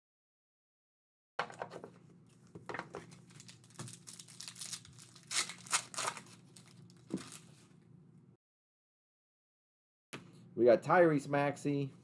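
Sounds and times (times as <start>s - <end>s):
foil wrapper tearing and crinkling: 3.0s - 7.5s.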